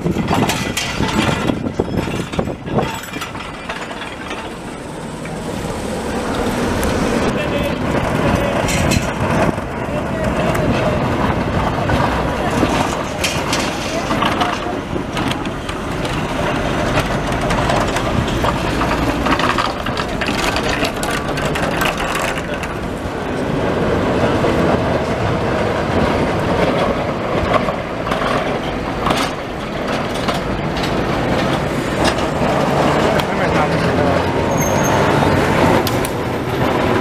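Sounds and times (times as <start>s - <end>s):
trams clanking over rails: 0.0s - 37.0s.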